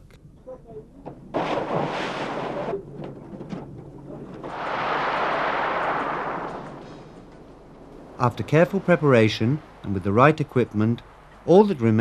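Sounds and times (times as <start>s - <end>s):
diver splashing into water: 1.3s - 2.8s, 4.4s - 10.3s
rushing noise: 4.4s - 12.0s.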